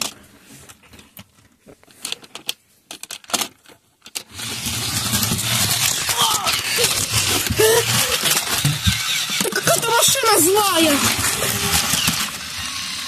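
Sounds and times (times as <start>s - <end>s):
toy car motor whirring: 4.2s - 13.0s.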